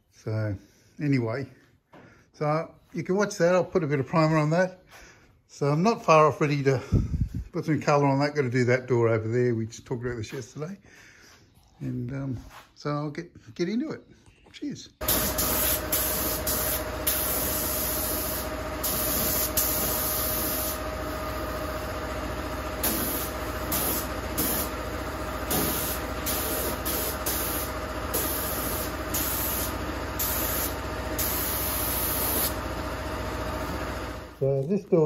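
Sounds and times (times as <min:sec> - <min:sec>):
spray gun hissing in bursts: 0:15.0 - 0:21.6, 0:22.7 - 0:32.7
air compressor humming: 0:15.0 - 0:34.5.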